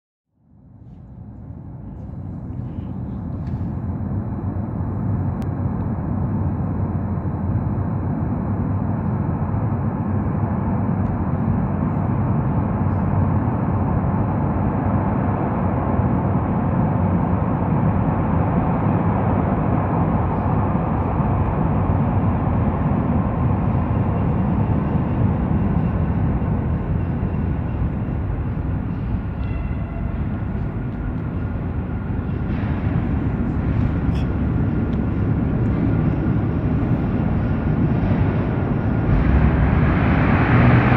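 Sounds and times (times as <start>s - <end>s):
metro train rumble in tunnel: 0.3s - 40.9s
faint high tones: 24.1s - 35.4s.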